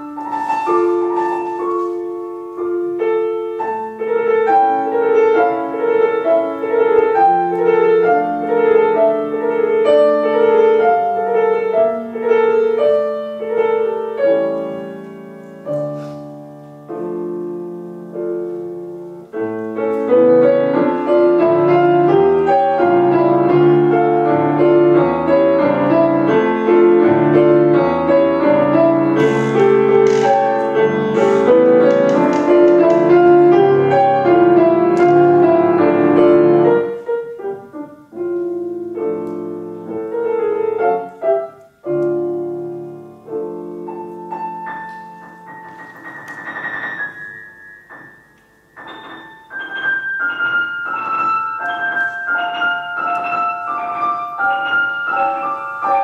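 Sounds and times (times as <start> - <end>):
grand piano playing: 0.0 - 56.0.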